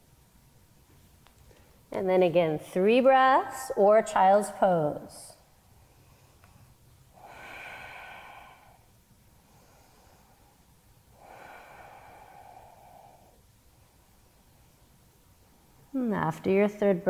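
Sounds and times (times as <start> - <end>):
woman breathing slowly: 5.6 - 14.7.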